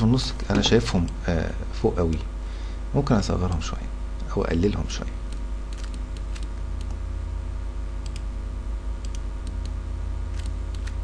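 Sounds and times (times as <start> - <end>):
low electrical hum: 0.0 - 11.0
computer clicks: 5.3 - 7.0, 8.0 - 8.3, 9.0 - 11.0.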